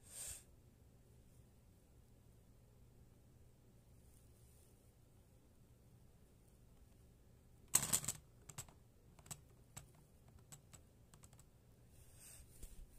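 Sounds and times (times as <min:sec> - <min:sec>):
spinning top clattering: 0:07.7 - 0:11.3.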